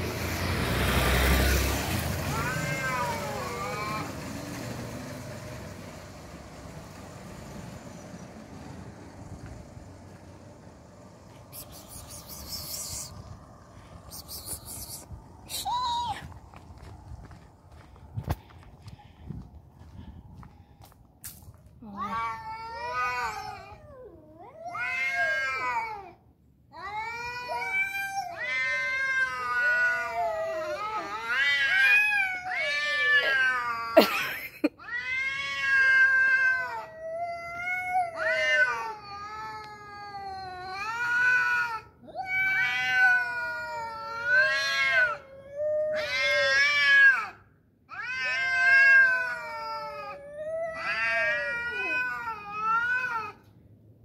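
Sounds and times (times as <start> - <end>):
cats yowling: 2.2 - 4.2, 22.0 - 26.1, 26.8 - 34.2, 34.8 - 53.4.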